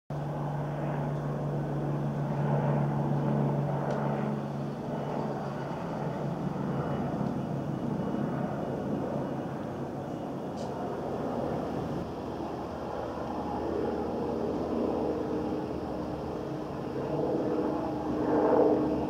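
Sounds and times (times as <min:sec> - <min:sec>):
helicopter rotor drone: 0:00.1 - 0:19.0.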